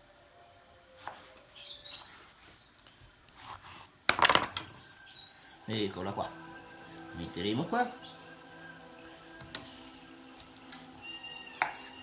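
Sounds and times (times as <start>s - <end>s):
faint high chirps: 0.0s - 2.8s, 4.7s - 12.0s.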